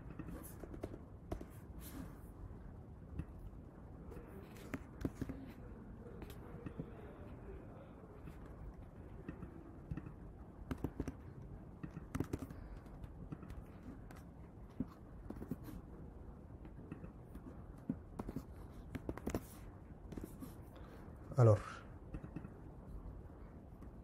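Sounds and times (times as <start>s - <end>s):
keyboard typing: 0.0s - 1.5s, 8.2s - 15.8s, 16.6s - 20.4s.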